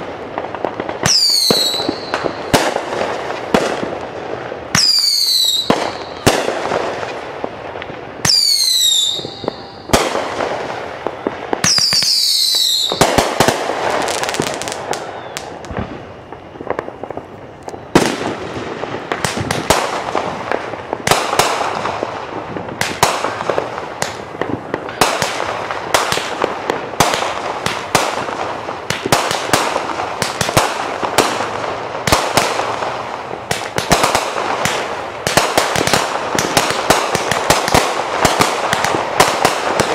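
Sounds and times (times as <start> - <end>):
firework bangs: 0.0 - 39.9
firework whistles falling in pitch: 1.0 - 2.5, 4.7 - 6.3, 8.2 - 10.0, 11.2 - 13.2, 14.0 - 16.7.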